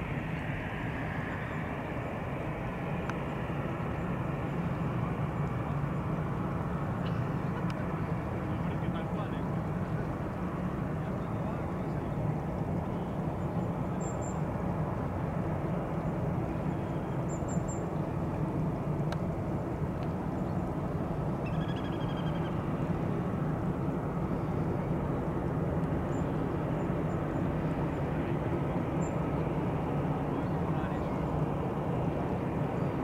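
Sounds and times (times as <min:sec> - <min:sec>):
jet engines rumbling: 0:00.0 - 0:33.0
bird chirps: 0:21.4 - 0:22.6.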